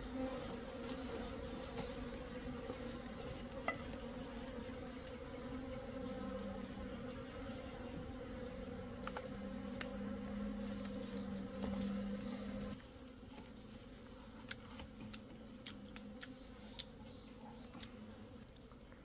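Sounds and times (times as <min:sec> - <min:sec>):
bees buzzing: 0:00.0 - 0:12.8.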